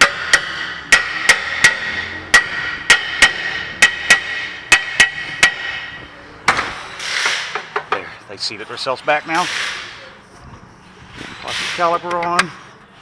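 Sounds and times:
metal brake rotor being knocked: 0.0 - 8.1.

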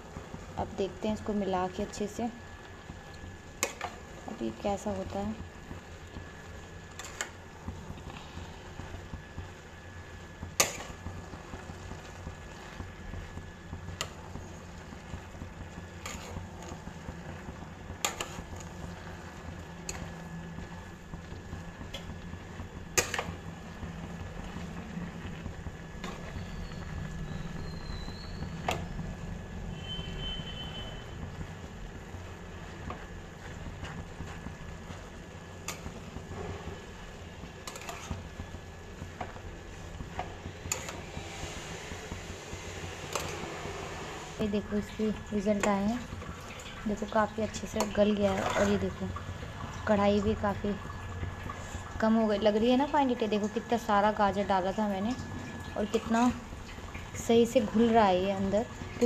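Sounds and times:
spatula stirring carrots: 0.0 - 29.0, 31.2 - 49.1
steady low hum: 0.0 - 59.0.

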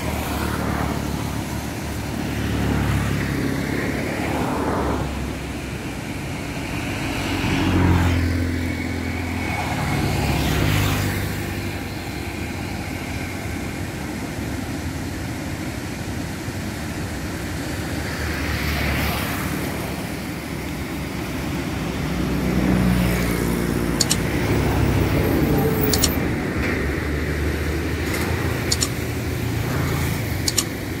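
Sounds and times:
road traffic rumbling: 0.0 - 31.0
vehicle engine passing close: 17.5 - 31.0
sharp clicks: 24.0 - 24.4, 25.9 - 26.2, 28.0 - 29.1, 30.3 - 30.9.

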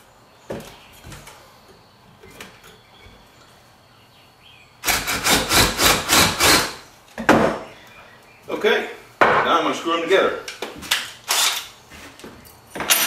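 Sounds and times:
cordless drill boring into wood: 4.8 - 6.8.

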